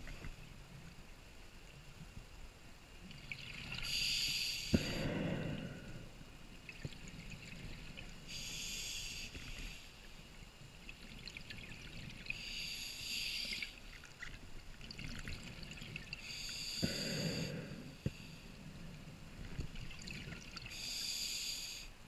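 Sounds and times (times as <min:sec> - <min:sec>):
regulator breathing inhalations: 0:08.3 - 0:10.0, 0:12.4 - 0:13.8, 0:16.2 - 0:18.6, 0:20.7 - 0:22.0.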